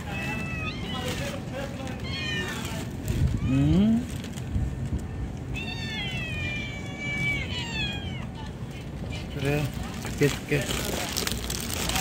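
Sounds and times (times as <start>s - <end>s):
young cats meowing: 0.0s - 3.7s, 5.4s - 9.4s.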